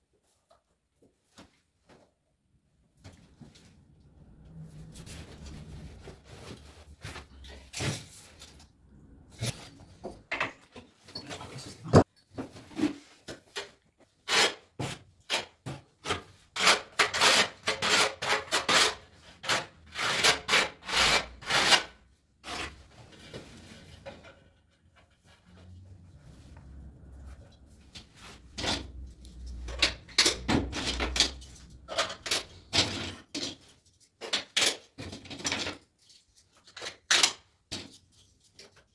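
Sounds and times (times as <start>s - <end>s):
trowel scraping tile adhesive: 14.2s - 22.9s.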